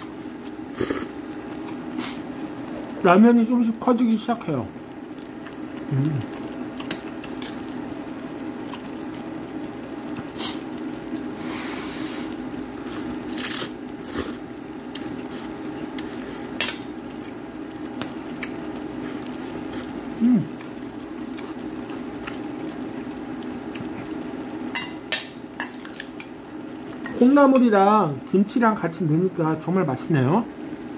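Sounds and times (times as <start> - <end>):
steady low hum: 0.0 - 30.9
slurping noodles: 0.7 - 1.2, 10.2 - 16.5, 18.9 - 22.7
person humming: 5.9 - 6.3, 20.2 - 20.6.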